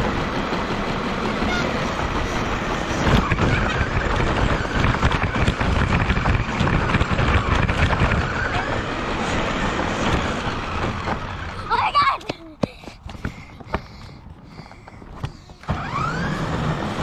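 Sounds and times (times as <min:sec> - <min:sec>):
rushing noise: 0:00.0 - 0:12.2.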